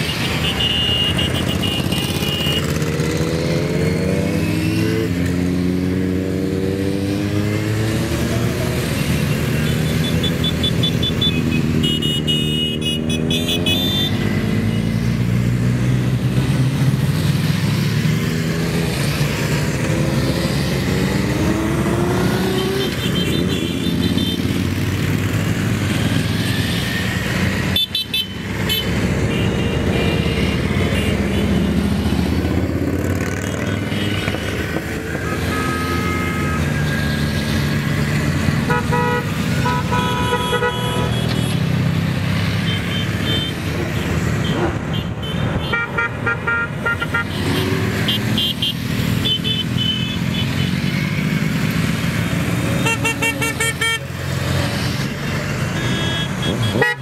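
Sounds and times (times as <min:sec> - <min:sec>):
vehicles driving past revving: 0:00.0 - 0:57.0
car horn toots: 0:38.6 - 0:41.5, 0:44.4 - 0:50.2, 0:52.8 - 0:54.1, 0:55.7 - 0:57.0.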